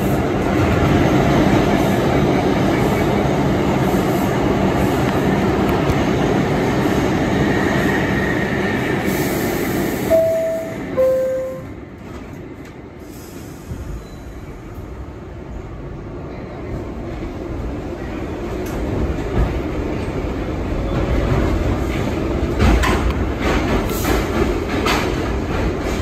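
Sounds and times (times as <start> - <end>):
subway car noise: 0.0 - 26.0
two-note door chime: 10.1 - 11.7.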